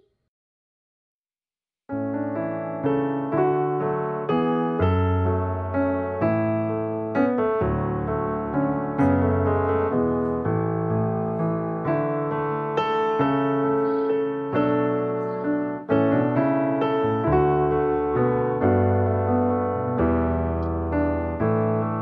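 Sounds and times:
soft piano music: 1.9s - 22.0s.

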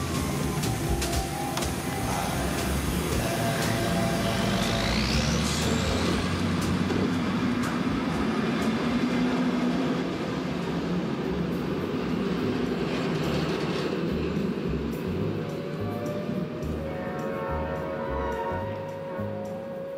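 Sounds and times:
high rising tone: 0.0s - 8.5s
train rumbling and hissing: 0.0s - 19.9s.

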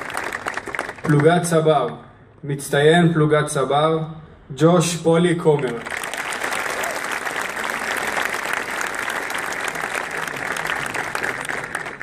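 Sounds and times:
crowd applauding: 0.0s - 1.6s, 5.5s - 12.0s.

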